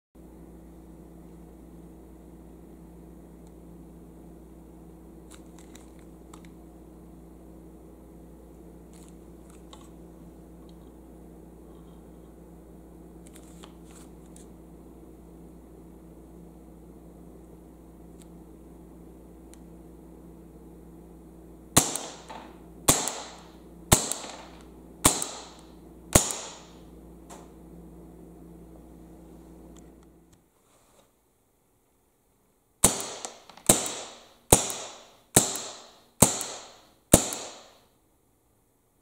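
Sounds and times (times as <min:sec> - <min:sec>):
pistol shots cracking: 0:21.8 - 0:26.8, 0:32.8 - 0:37.8.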